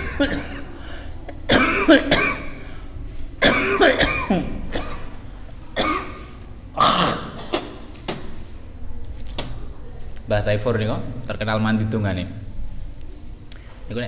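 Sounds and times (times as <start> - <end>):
man coughing: 0.0 - 0.8, 1.5 - 2.6, 3.4 - 5.1, 5.8 - 7.7.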